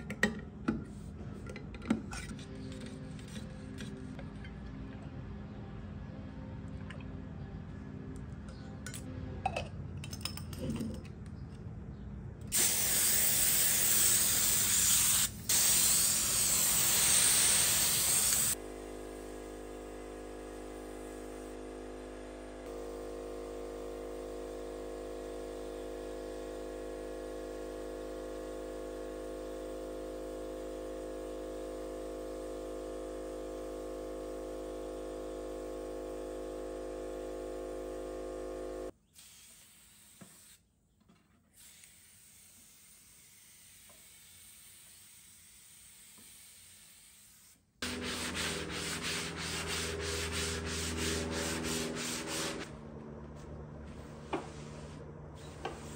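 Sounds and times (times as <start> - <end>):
spray gun hissing: 12.6 - 18.6, 47.8 - 52.7
sanding sponge rubbing wood: 47.8 - 52.7.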